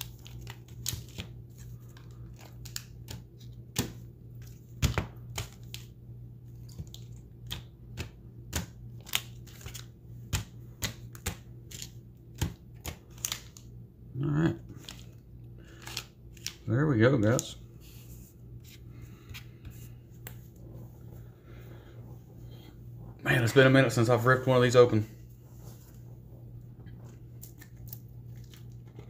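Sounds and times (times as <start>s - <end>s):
foil wrappers crinkling: 0.0s - 13.7s
steady low hum: 0.0s - 29.0s.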